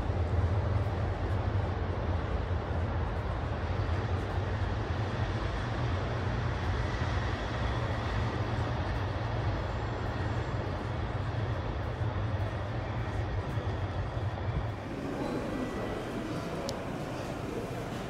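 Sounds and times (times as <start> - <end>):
traffic rumble: 14.4 - 18.0.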